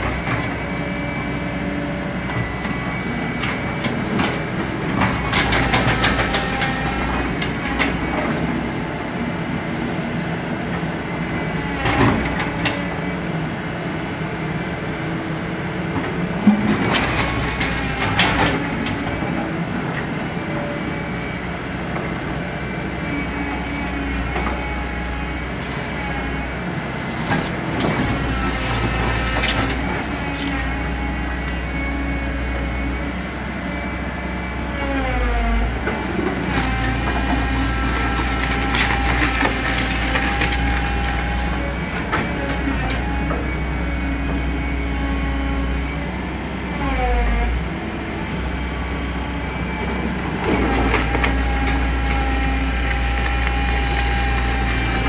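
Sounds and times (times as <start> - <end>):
excavator diesel engine: 0.0 - 55.0
hydraulic whine: 22.9 - 55.0.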